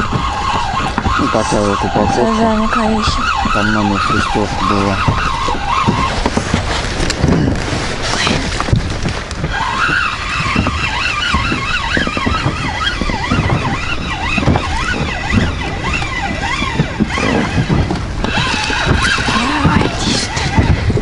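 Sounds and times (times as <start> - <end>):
wavering whistle: 0.0 - 6.2, 9.5 - 17.6
water slapping against boat: 0.0 - 21.0
wind buffeting microphone: 0.0 - 21.0.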